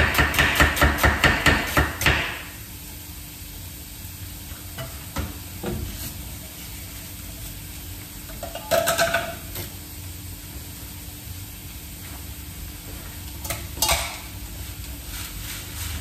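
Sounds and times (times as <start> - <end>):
potato sizzling in frying pan: 2.4 - 16.0
kitchen paper rustling: 14.2 - 16.0.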